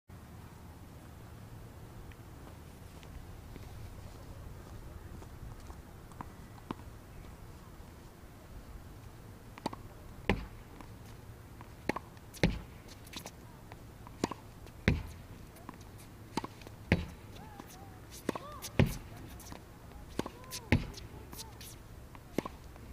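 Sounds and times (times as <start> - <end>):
tennis ball bouncing on hard court: 9.6 - 10.9, 11.8 - 13.3, 14.1 - 22.6
racket hitting tennis ball: 9.6 - 11.0, 11.8 - 13.4, 14.1 - 22.8.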